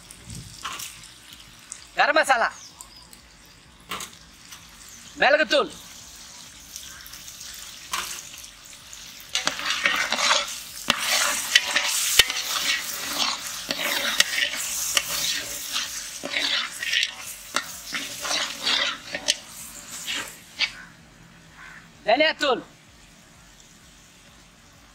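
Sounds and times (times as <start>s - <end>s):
metal ladle scraping a pot: 9.3s - 20.8s.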